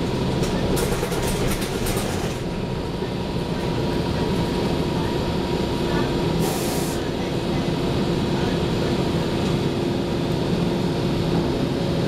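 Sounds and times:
bus engine running: 0.0s - 12.0s
air hiss: 6.4s - 7.0s.

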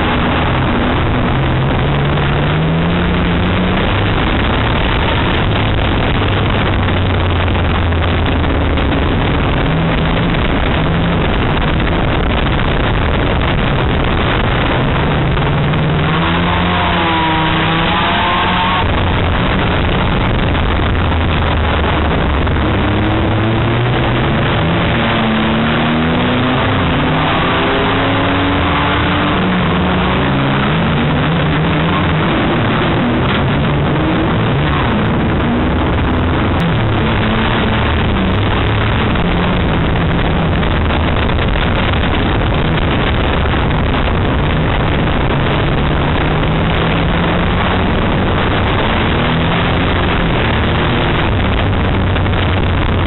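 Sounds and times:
racing car engine revving: 0.0s - 53.0s
road and wind noise: 0.0s - 53.0s.

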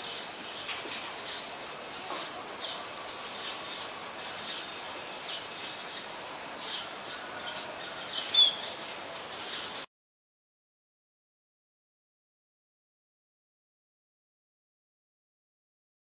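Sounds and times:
outdoor background hiss: 0.0s - 9.9s
small birds chirping: 0.0s - 9.9s.

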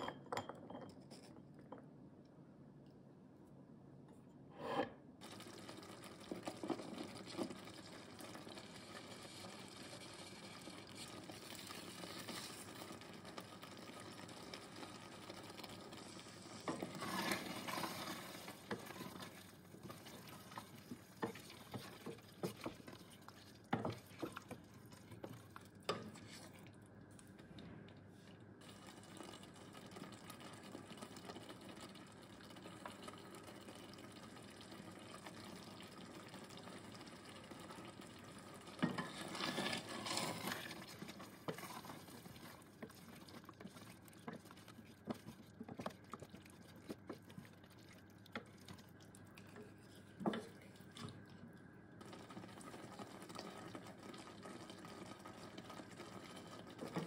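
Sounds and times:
sauce simmering sizzle: 5.2s - 27.4s, 28.6s - 57.0s
spoon scraping and knocking pot: 38.8s - 40.6s.

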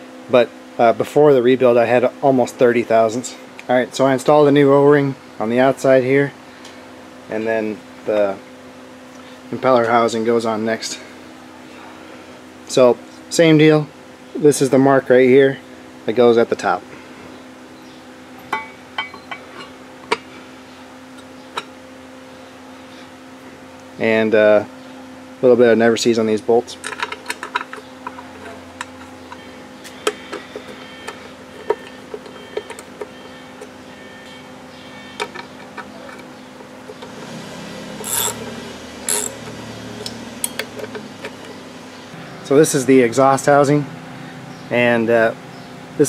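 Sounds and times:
steady low hum: 0.0s - 46.0s
rapid ratchet clicking: 38.0s - 40.7s.

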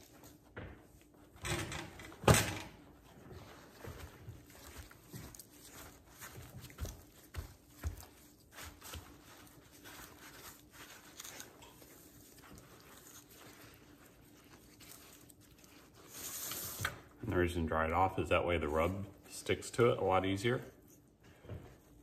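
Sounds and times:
paper towels rustling and crinkling: 2.8s - 22.0s.

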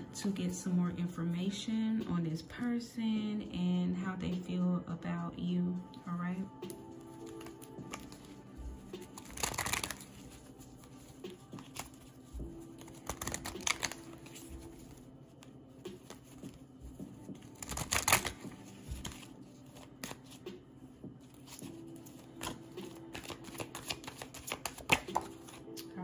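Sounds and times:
cards being shuffled by hand: 6.6s - 20.6s, 21.2s - 26.0s.

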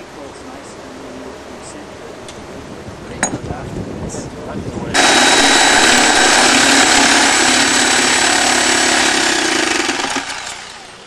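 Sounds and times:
machine running with high whine: 4.9s - 11.0s.

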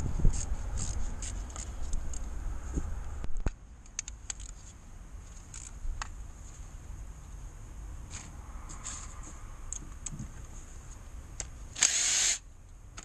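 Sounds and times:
gloved hands clicking and scraping fittings: 0.0s - 2.3s, 3.4s - 6.2s.

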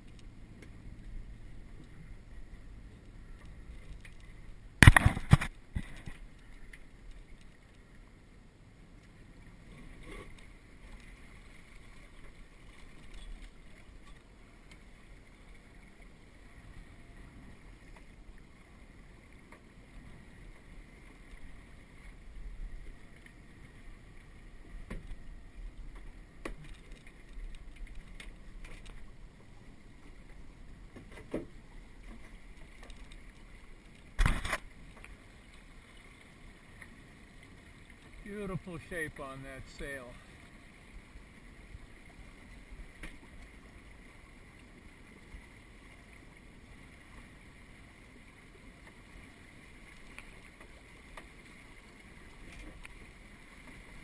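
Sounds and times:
water washing along hulls: 0.0s - 54.0s
clicks and knocks from boat: 3.3s - 7.6s, 24.7s - 25.2s, 25.9s - 29.1s, 30.0s - 35.2s, 52.3s - 53.9s.

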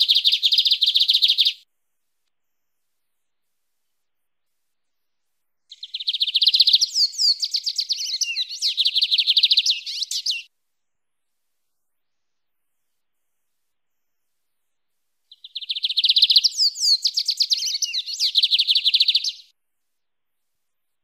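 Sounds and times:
bird singing: 0.0s - 1.6s, 5.7s - 10.5s, 15.3s - 19.5s.

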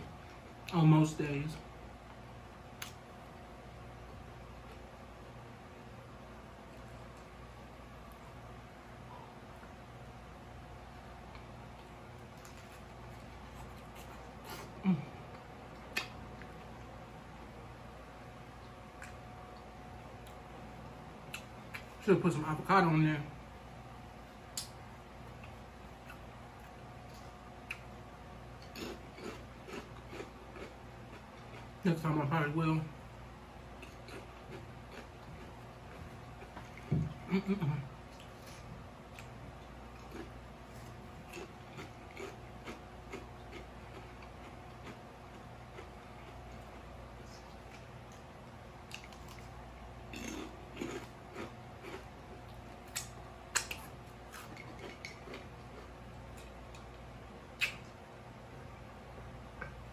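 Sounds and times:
crunchy chip being chewed: 28.6s - 31.8s, 33.8s - 36.9s, 38.1s - 46.9s, 48.8s - 57.0s
wet chewing clicks: 47.5s - 49.5s, 50.1s - 57.0s, 57.6s - 58.0s.

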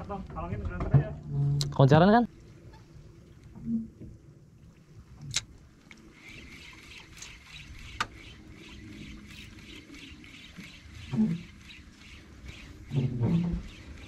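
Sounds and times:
water sloshing against boat hull: 2.3s - 14.0s
sharp clicks: 5.2s - 14.0s.

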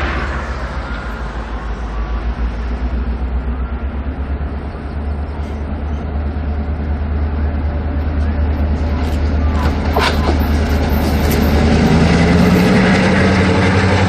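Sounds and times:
diesel locomotive rumbling: 0.0s - 14.0s.

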